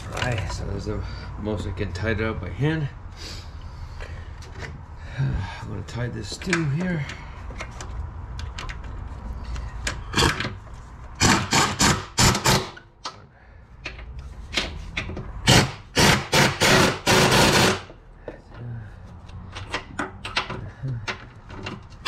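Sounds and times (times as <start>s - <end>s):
cordless ratchet bursts: 11.2s - 12.8s, 15.4s - 17.9s.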